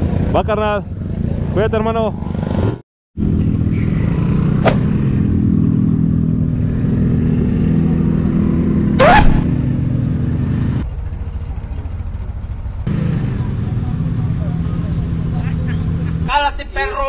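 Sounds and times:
motorcycle engine running: 0:03.2 - 0:16.2
short rising pitch sound: 0:09.0 - 0:09.5.

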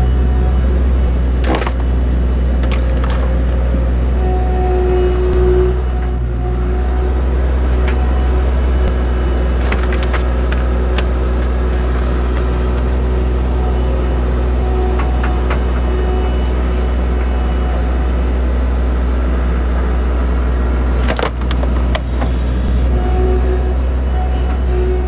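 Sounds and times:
skid-steer engine running: 0:00.0 - 0:25.0
wood cracking and splintering: 0:01.4 - 0:01.9, 0:02.5 - 0:03.6, 0:09.4 - 0:13.1, 0:21.0 - 0:22.4.

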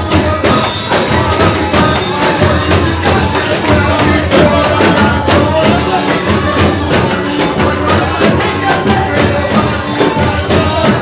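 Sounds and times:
live worship music: 0:00.0 - 0:11.0
hands clapping: 0:00.1 - 0:11.0.

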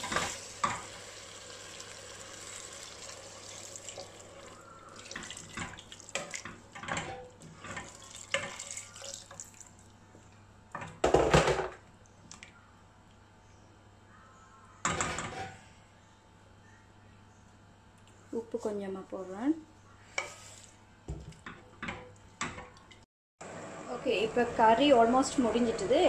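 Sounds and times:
water pouring into a pot: 0:00.0 - 0:06.5, 0:07.8 - 0:09.8.

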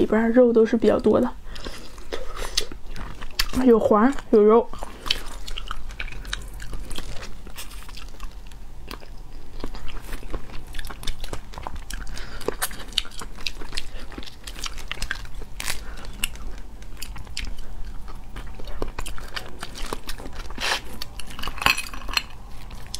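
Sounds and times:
wet chewing and sucking: 0:01.4 - 0:22.9
shells cracking and snapping: 0:21.0 - 0:22.9.

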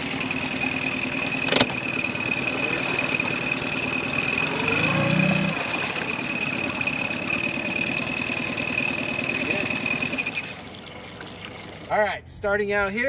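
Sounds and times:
outboard motor running: 0:00.0 - 0:12.9
short rising sound: 0:01.8 - 0:07.3.

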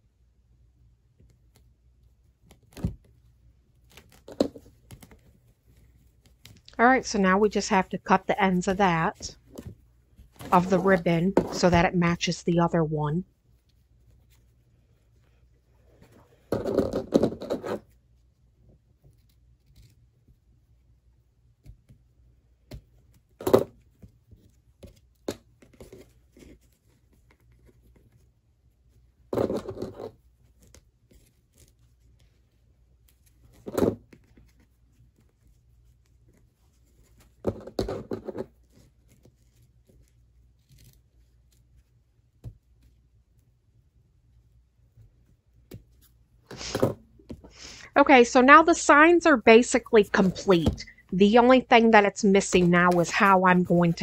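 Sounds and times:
ribbon rustling and scraping: 0:01.3 - 0:12.2, 0:13.2 - 0:20.8, 0:21.5 - 0:54.0.

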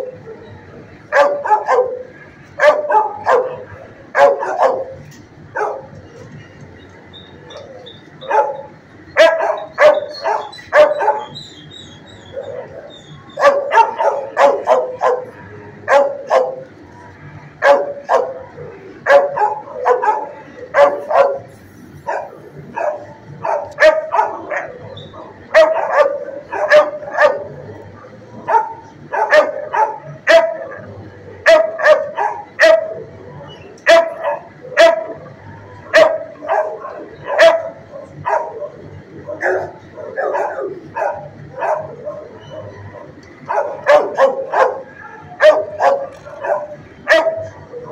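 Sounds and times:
dog barking: 0:01.1 - 0:05.0, 0:05.6 - 0:05.9, 0:08.2 - 0:11.4, 0:12.3 - 0:16.6, 0:17.6 - 0:27.6, 0:28.4 - 0:33.0, 0:33.9 - 0:35.2, 0:35.9 - 0:47.9.

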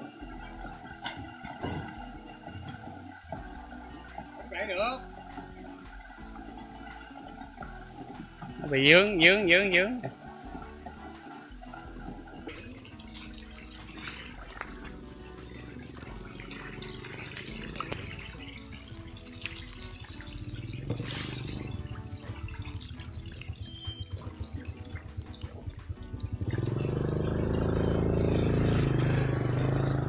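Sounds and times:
fish splashing at water surface: 0:10.4 - 0:29.9
low motor hum: 0:20.1 - 0:30.0.

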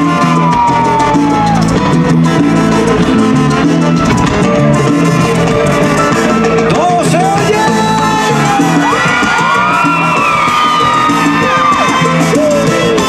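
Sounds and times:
drum kit: 0:00.0 - 0:13.0
keyboard: 0:00.0 - 0:13.0
salsa band playing: 0:00.0 - 0:13.0.

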